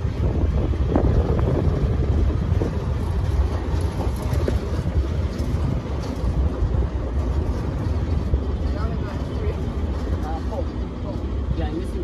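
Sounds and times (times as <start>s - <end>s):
vehicle engine and road rumble: 0.0s - 12.0s
wind buffeting the microphone: 0.0s - 12.0s.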